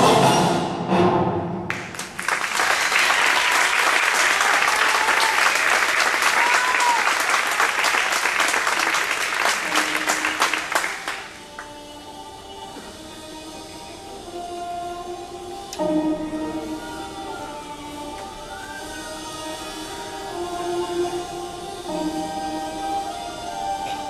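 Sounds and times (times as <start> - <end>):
audience applauding: 1.7 - 11.8
soft orchestral music: 8.9 - 24.0.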